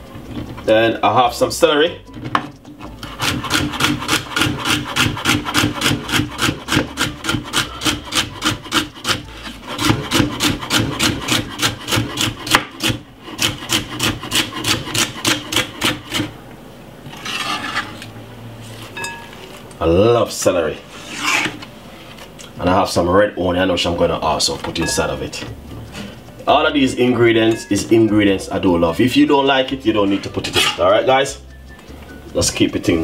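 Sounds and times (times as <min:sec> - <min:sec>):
knife chopping on wooden board: 0:03.2 - 0:16.3.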